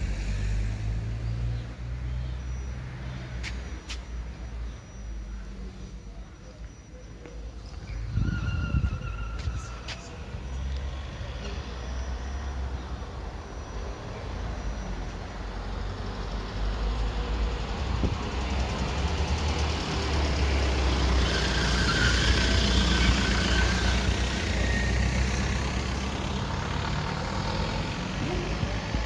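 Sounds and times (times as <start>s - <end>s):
brief engine whine: 0.0s - 18.8s
vehicle engine running: 22.3s - 29.0s.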